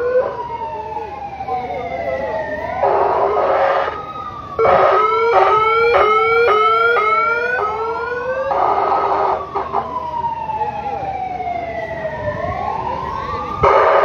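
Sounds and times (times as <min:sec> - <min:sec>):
siren fast yelp: 0:00.0 - 0:14.0
siren slow falling wail: 0:00.0 - 0:14.0.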